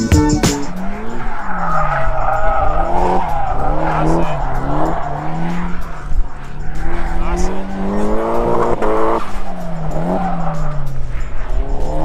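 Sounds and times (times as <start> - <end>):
car engine revving: 0.0 - 12.0
tyres squealing on tarmac: 0.6 - 7.8.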